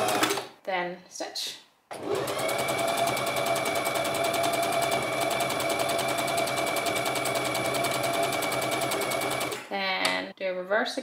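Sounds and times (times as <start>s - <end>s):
sewing machine motor hum: 0.0s - 0.4s, 1.9s - 9.7s
sewing machine needle rhythm: 2.0s - 9.7s.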